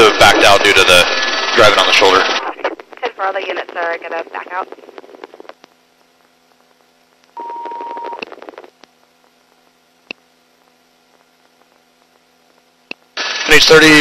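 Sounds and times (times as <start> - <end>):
radio static burst: 0.0 - 6.7, 13.1 - 14.0
steady radio beep: 7.4 - 8.2.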